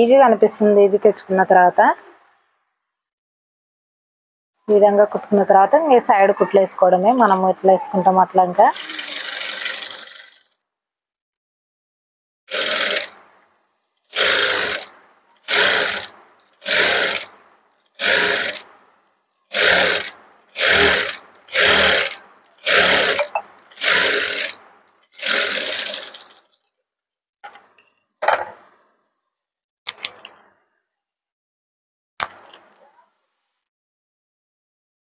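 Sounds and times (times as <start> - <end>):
sewing machine stitching: 8.6 - 10.6, 12.5 - 13.4, 14.1 - 17.4, 18.0 - 18.8, 19.5 - 26.6.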